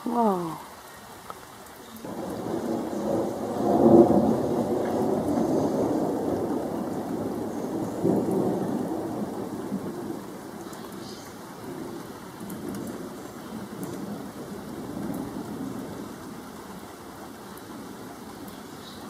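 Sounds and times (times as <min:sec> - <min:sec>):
rain falling: 0:00.0 - 0:19.0
thunder rolling: 0:02.0 - 0:16.5.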